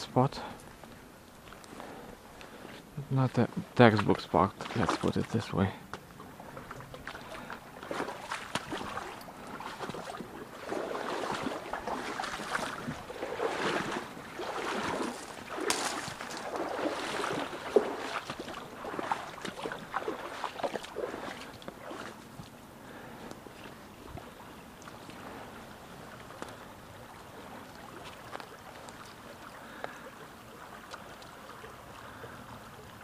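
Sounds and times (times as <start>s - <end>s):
footsteps through brush: 7.1s - 22.4s.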